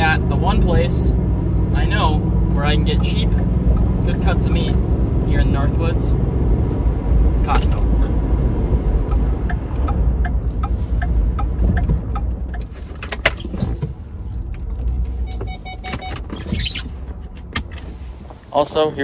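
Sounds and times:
truck engine and road rumble: 0.0s - 19.0s.

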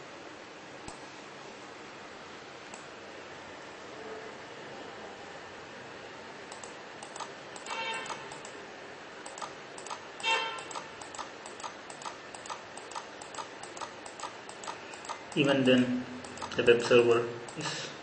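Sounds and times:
steady ticking: 9.2s - 17.7s.

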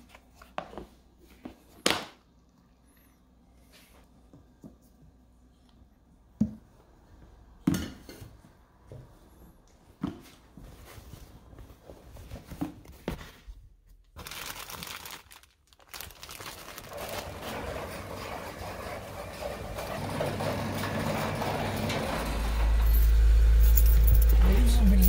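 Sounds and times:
fabric bag rustling: 14.2s - 17.4s
steady mechanical noise: 17.0s - 25.0s.

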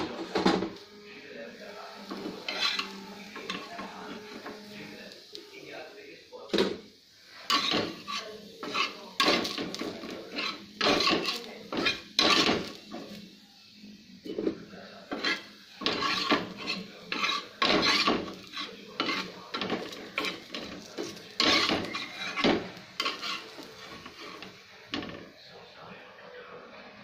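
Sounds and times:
spatula scraping frying pan: 2.0s - 5.0s, 7.3s - 13.2s, 14.2s - 25.3s.

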